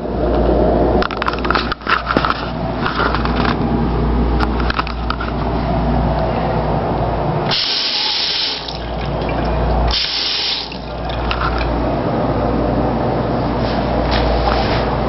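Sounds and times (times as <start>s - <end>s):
water gushing from faucet: 7.5s - 11.8s.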